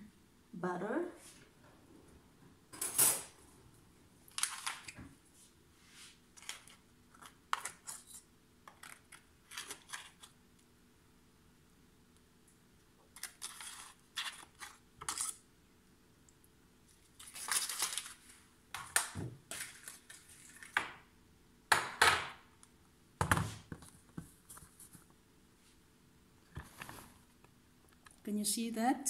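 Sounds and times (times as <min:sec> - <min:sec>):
foil wrapper crinkling: 0:04.3 - 0:05.0, 0:17.0 - 0:20.8.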